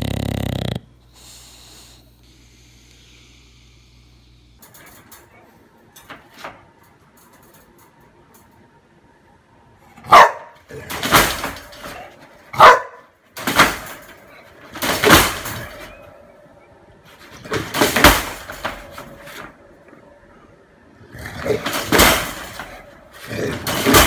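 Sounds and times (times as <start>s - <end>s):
dog barking: 10.0s - 10.6s, 12.5s - 13.2s.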